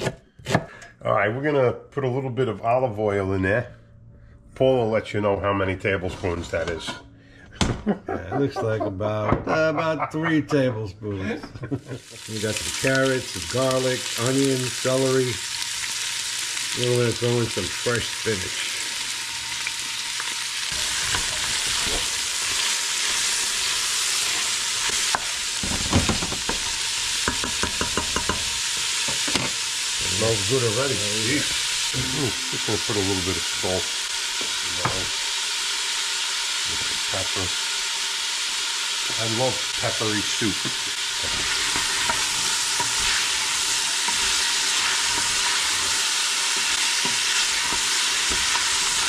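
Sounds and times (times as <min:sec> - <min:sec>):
wooden spoon scraping a pot: 0:05.9 - 0:07.1, 0:41.2 - 0:49.0
vegetables sizzling in oil: 0:11.9 - 0:49.0
spoon tapping pot: 0:27.2 - 0:28.4.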